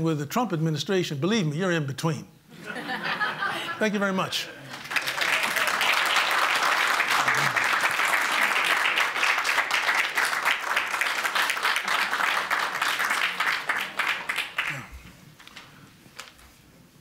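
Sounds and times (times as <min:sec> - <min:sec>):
audience applauding: 0:04.6 - 0:14.9.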